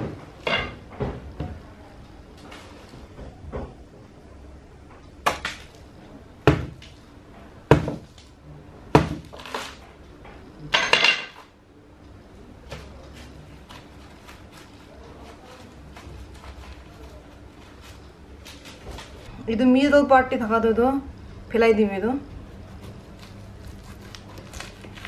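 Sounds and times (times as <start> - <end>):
knife chopping fruit: 6.5 - 6.9, 7.7 - 8.2, 8.9 - 9.8
fruit tearing and crunching: 9.2 - 9.8, 22.5 - 25.0.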